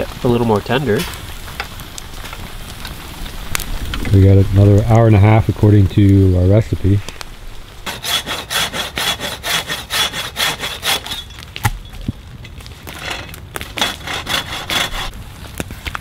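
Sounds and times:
hand saw cutting branch: 0:07.9 - 0:11.3, 0:12.9 - 0:15.1.

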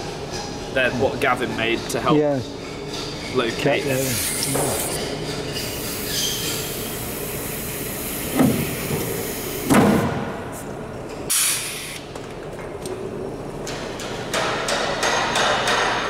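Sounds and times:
workshop background noise: 0:00.0 - 0:16.0
brief air hiss: 0:04.0 - 0:04.9, 0:11.3 - 0:12.0.

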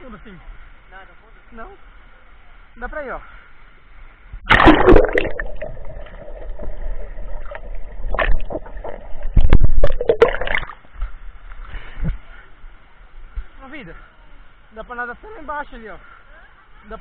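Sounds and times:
water splashing: 0:04.4 - 0:11.4
muffled underwater bubbling: 0:04.5 - 0:10.8
churning water: 0:04.5 - 0:10.9.

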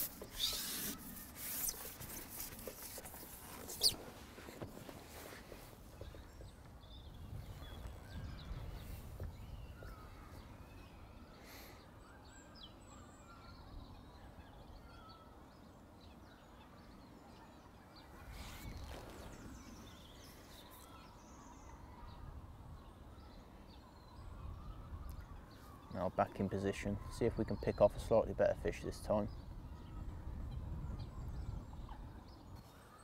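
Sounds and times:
distant bird calls: 0:00.0 - 0:33.0
wind rumble on microphone: 0:03.8 - 0:11.2, 0:29.3 - 0:32.7.

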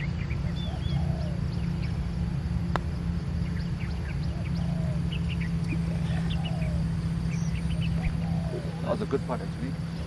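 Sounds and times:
birds chirping: 0:00.0 - 0:10.0
steady low hum: 0:00.0 - 0:10.0
putter striking golf ball: 0:02.7 - 0:03.0.

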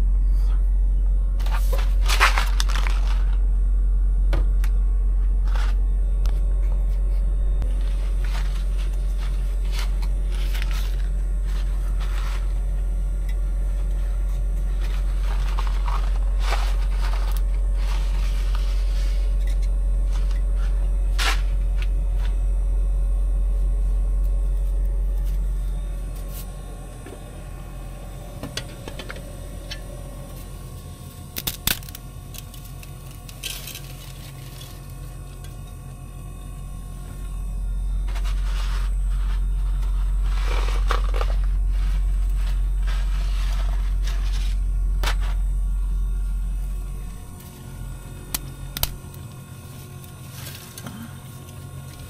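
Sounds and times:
steady low drone: 0:00.0 - 0:52.0
clicks and crackles: 0:28.5 - 0:35.9, 0:46.6 - 0:52.0.

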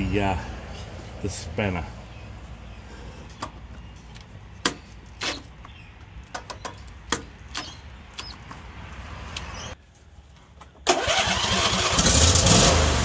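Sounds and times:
tools clicking and knocking: 0:03.3 - 0:08.6.

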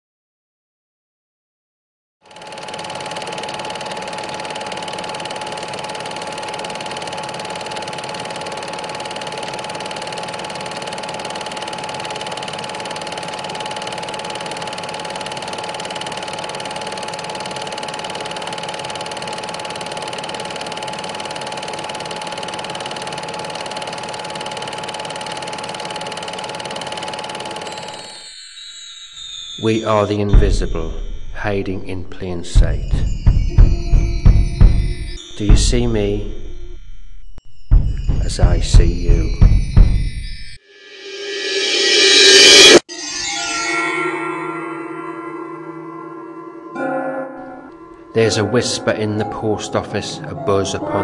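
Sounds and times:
film projector whirring: 0:02.2 - 0:28.4.

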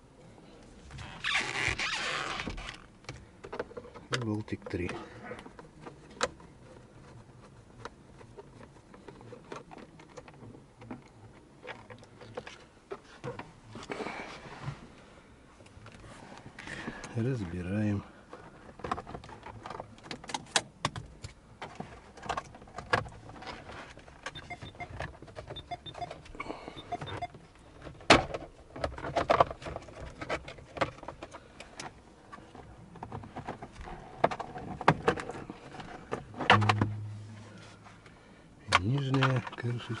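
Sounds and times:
plastic covers clicking and snapping: 0:36.4 - 0:37.1.

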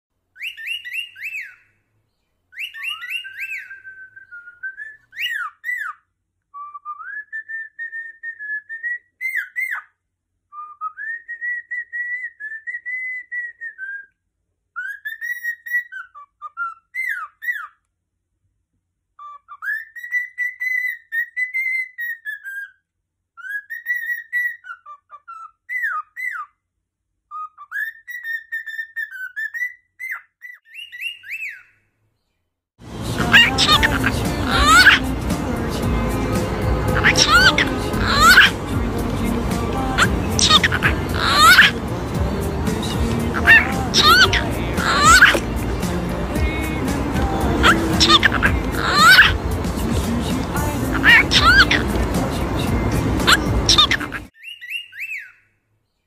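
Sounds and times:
cockatiel whistling a tune: 0:00.4 - 0:01.6, 0:02.6 - 0:09.9, 0:10.5 - 0:17.8, 0:19.2 - 0:22.8, 0:23.4 - 0:26.5, 0:27.3 - 0:31.8, 0:40.4 - 0:41.8, 0:43.4 - 0:45.4, 0:47.6 - 0:49.4, 0:53.2 - 0:55.4.

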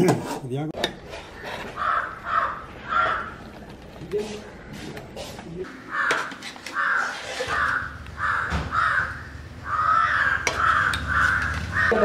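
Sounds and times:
crow cawing: 0:01.4 - 0:03.4, 0:05.6 - 0:12.0.

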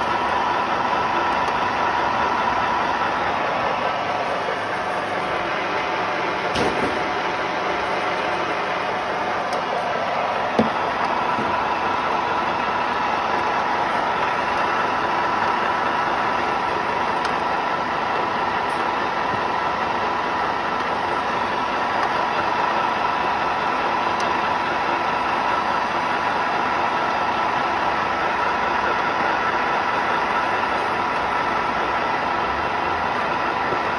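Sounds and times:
pellet mill running with hum: 0:00.0 - 0:33.9.

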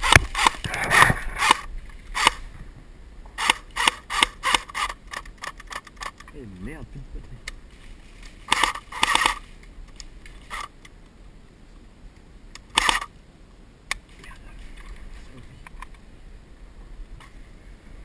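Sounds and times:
airsoft rifle bursts: 0:08.5 - 0:09.4, 0:12.7 - 0:13.1
sharp click: 0:12.5 - 0:13.1.

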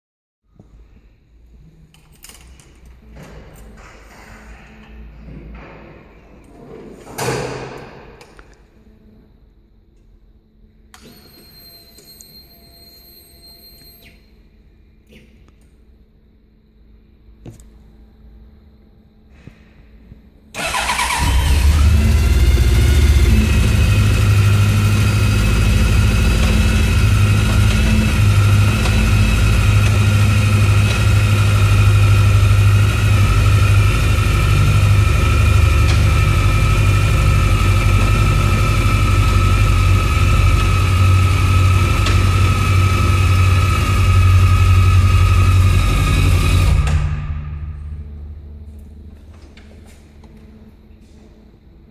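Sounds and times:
motorcycle engine starting and idling: 0:20.5 - 0:50.4.

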